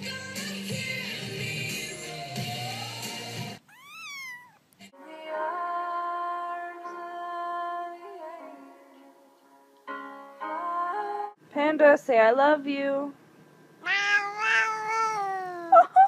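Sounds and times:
pop song with woman singing: 0.0 - 3.6, 4.9 - 9.2
cat meowing: 3.7 - 4.6, 13.8 - 15.7.

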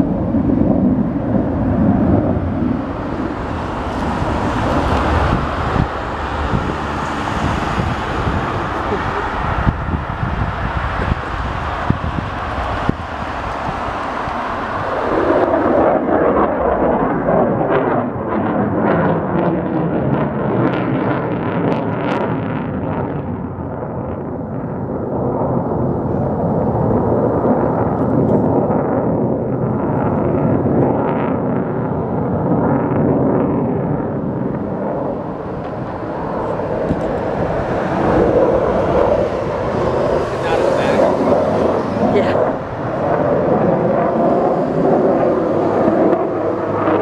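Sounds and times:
jet aircraft engine roar: 0.0 - 47.0.

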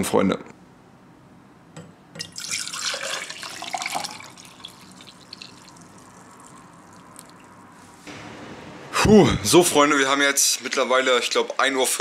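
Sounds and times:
liquid splashing into metal cup: 2.2 - 7.5.

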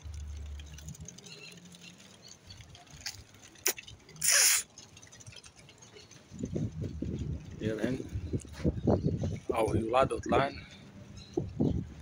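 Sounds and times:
loud hissing rustle: 3.6 - 4.8.

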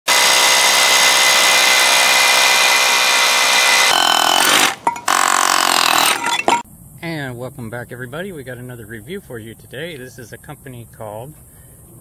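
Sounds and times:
hammer drill boring into concrete: 0.1 - 6.6.

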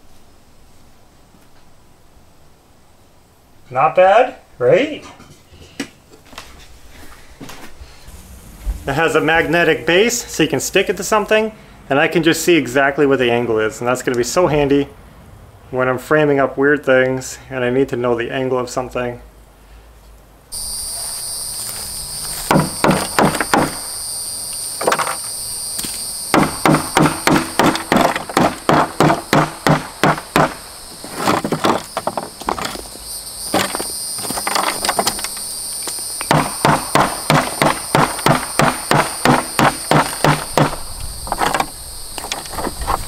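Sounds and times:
hammer knocking on plastic: 22.5 - 23.8, 26.4 - 30.6, 36.3 - 40.8.

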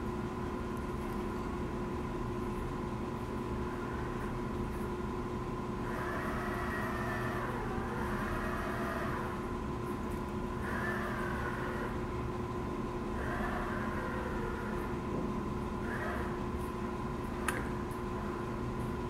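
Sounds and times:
steady hum: 0.0 - 19.0
electric thrusters whining underwater: 5.8 - 9.5, 10.6 - 12.2, 13.1 - 15.1, 15.8 - 16.5.

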